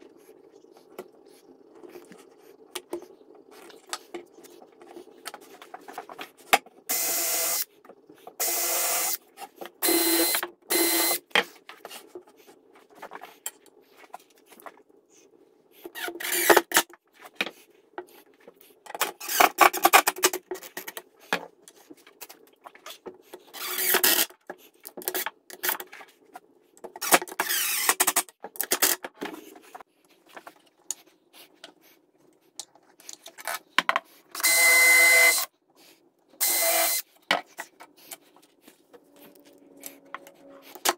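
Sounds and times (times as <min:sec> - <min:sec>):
cordless drill running: 0:06.9 - 0:07.6, 0:08.4 - 0:09.2, 0:09.8 - 0:11.2, 0:34.4 - 0:35.4, 0:36.4 - 0:37.0.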